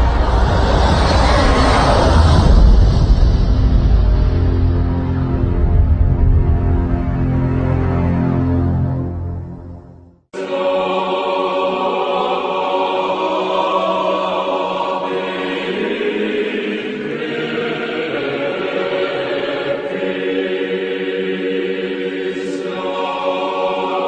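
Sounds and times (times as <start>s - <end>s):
background music: 3.8s - 24.0s
choir singing held chords: 10.4s - 24.0s.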